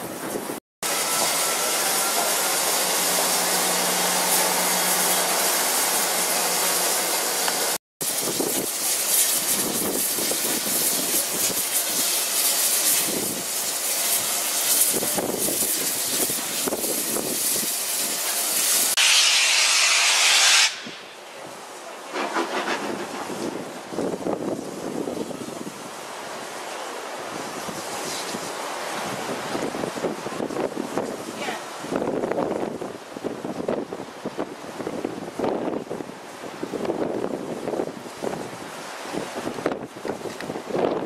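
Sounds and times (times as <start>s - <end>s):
steam locomotive hissing: 0.8s - 21.2s, 22.1s - 24.4s.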